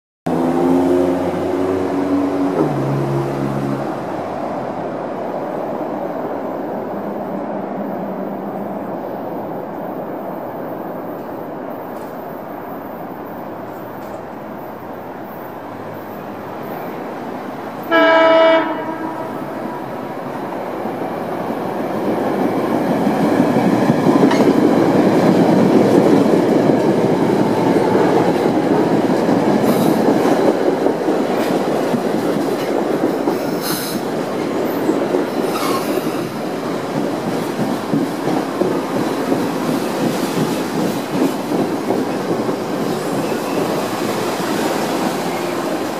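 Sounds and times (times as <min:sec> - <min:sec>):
train wheels rushing on rail: 0:00.3 - 0:45.9
train horn blast: 0:17.9 - 0:19.8.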